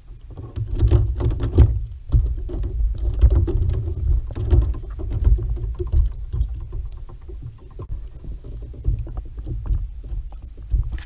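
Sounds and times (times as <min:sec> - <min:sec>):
heavy low rumble: 0:01.7 - 0:11.0.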